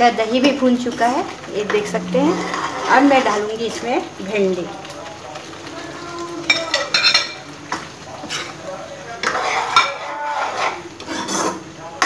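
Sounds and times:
metal spoon scraping a pan: 0:00.8 - 0:03.8, 0:06.5 - 0:11.7.

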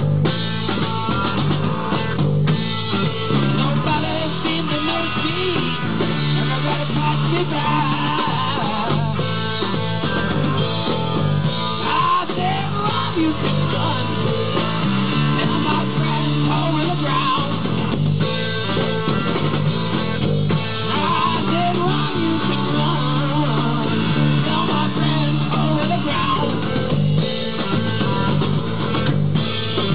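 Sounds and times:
drum kit: 0:00.0 - 0:29.9
electric bass line: 0:00.0 - 0:29.9
electric guitar bending lead notes: 0:00.0 - 0:29.9.

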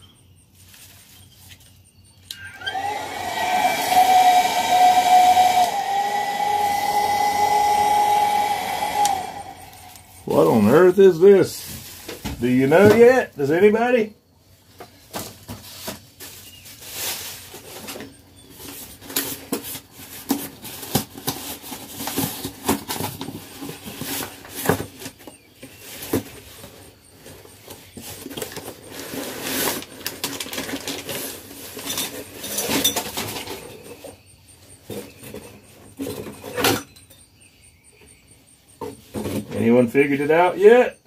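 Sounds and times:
packaging rustling and crinkling: 0:15.0 - 0:25.2, 0:28.0 - 0:31.9.

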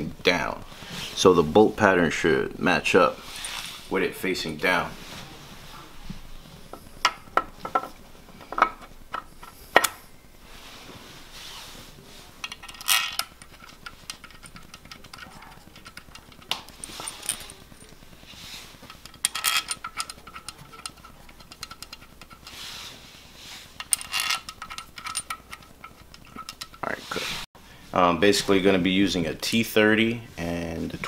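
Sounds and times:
small metal parts clinking: 0:12.4 - 0:18.0, 0:18.8 - 0:22.6, 0:23.8 - 0:26.8.

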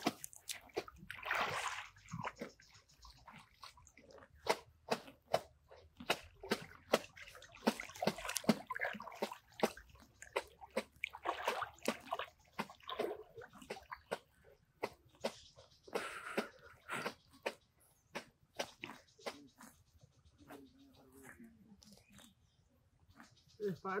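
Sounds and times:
net hitting water: 0:00.0 - 0:02.4, 0:06.1 - 0:15.0
water splashing and sloshing: 0:00.0 - 0:19.9.

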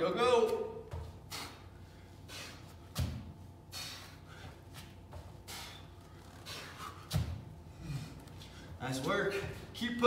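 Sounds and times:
feet thudding on exercise mat: 0:00.8 - 0:01.6, 0:02.6 - 0:05.9, 0:06.6 - 0:07.6
man breathing hard: 0:01.2 - 0:08.8.

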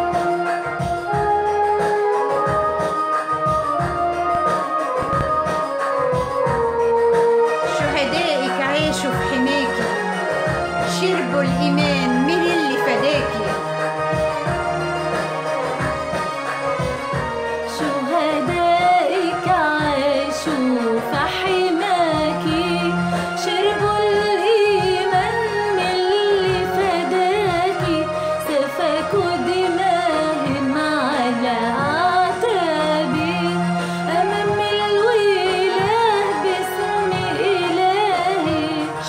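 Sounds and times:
instrumental backing: 0:00.0 - 0:39.0
woman singing a hymn: 0:10.9 - 0:13.6, 0:17.8 - 0:39.0.

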